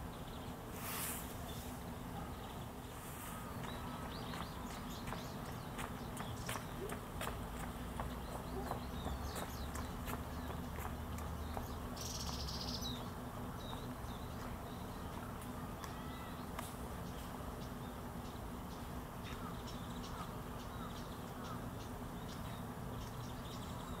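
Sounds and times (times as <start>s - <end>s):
steady low hum: 0.0s - 24.0s
faint bird calls: 19.2s - 22.6s.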